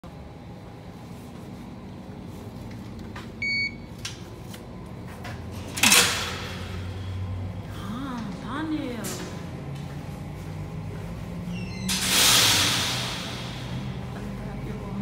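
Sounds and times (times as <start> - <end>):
low steady hum: 0.0 - 12.0, 12.8 - 15.0
card reader beep: 3.4 - 3.9
metal security gate clanking: 5.6 - 6.9, 11.7 - 13.8.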